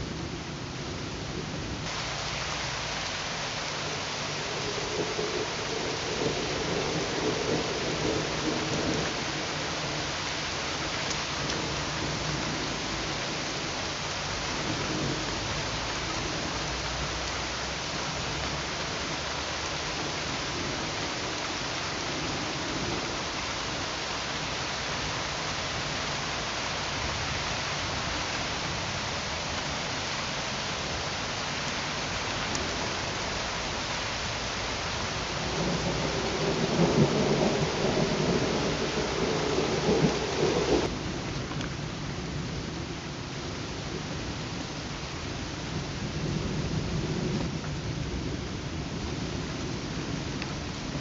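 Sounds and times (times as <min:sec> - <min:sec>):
steady rain: 0:00.0 - 0:51.0
thunder rumbling: 0:03.6 - 0:16.8, 0:34.4 - 0:43.3.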